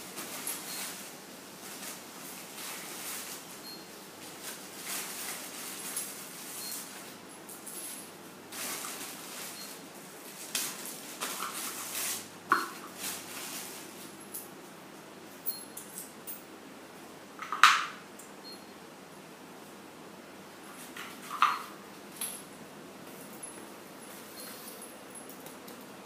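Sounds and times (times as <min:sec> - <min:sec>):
plastic bags rustling and crinkling: 0:00.0 - 0:14.4.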